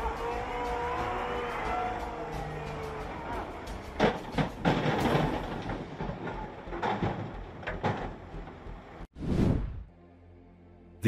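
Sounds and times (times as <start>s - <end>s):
knocks and clatter of debris: 4.0s - 8.6s.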